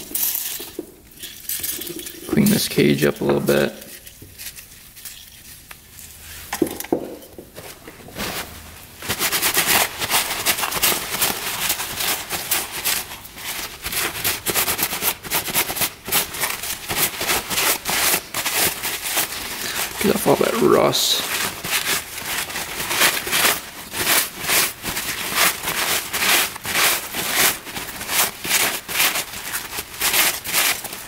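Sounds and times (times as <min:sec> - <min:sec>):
paper towel rubbing on metal: 0:08.0 - 0:31.0.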